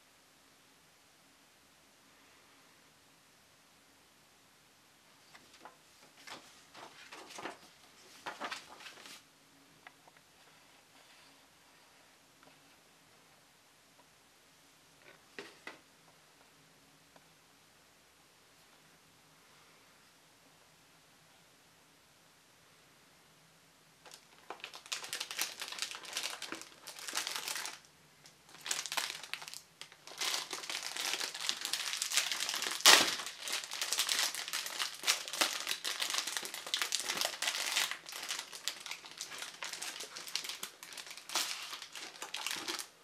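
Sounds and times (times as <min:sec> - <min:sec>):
plastic packaging crinkling: 0:05.2 - 0:09.2, 0:24.0 - 0:43.0.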